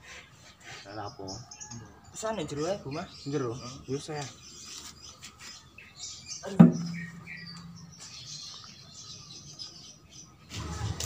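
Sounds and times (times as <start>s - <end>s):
faint bird chirps: 2.8s - 10.5s
sharp knock: 6.6s - 7.9s
low ringing hum: 6.7s - 8.4s.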